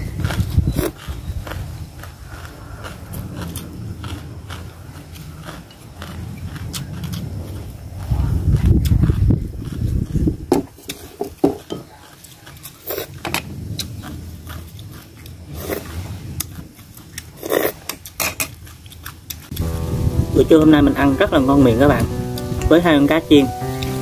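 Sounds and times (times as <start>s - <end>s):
person chewing: 0.0s - 11.0s, 11.8s - 19.7s
loud low rumble: 19.5s - 24.0s.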